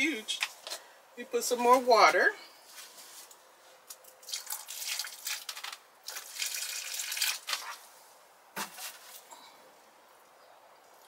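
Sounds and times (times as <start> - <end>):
water pouring onto soil: 4.2 - 7.8.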